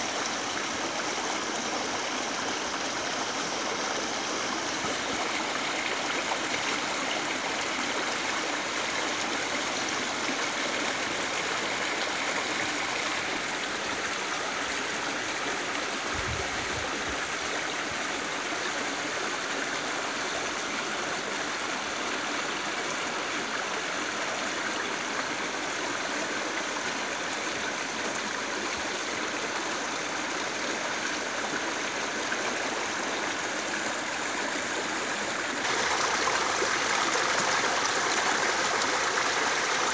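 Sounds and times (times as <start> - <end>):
river water rushing over rocks: 33.0 - 39.9.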